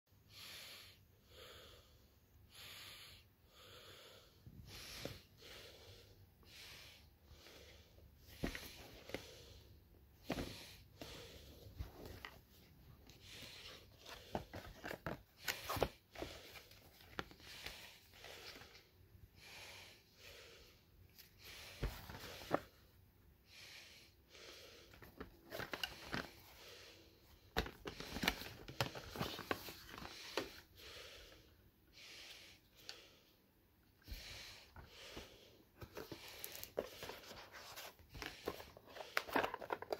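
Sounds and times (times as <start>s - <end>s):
cardboard and paper rustling: 11.6s - 17.8s, 21.8s - 22.8s, 25.0s - 26.6s, 27.5s - 30.6s, 35.8s - 39.9s.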